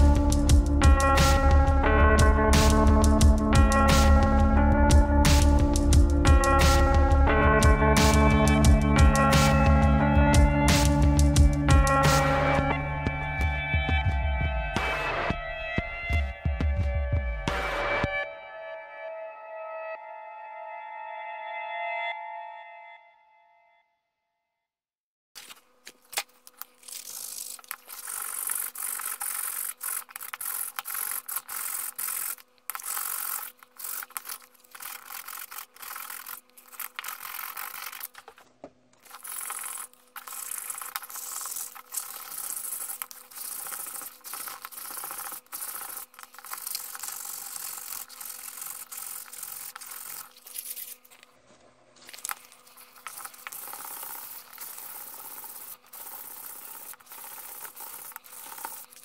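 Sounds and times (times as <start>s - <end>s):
sanding sponge scraping wood: 26.6s - 38.4s, 39.0s - 51.2s, 52.0s - 59.0s.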